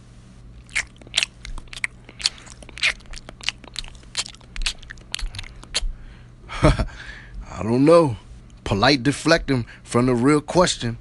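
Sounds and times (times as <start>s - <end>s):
faint low hum: 0.0s - 11.0s
person chewing crunchy chips: 0.6s - 6.0s.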